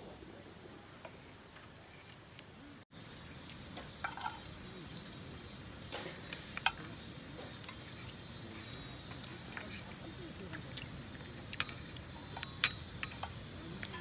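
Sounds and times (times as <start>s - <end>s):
metal spoon clinking steel bowl: 4.0s - 4.4s, 11.6s - 13.4s.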